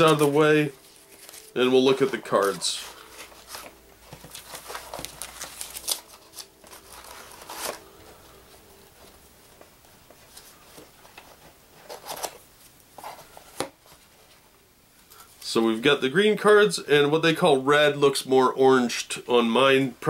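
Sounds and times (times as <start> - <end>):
paper rustling: 0.0 - 12.4.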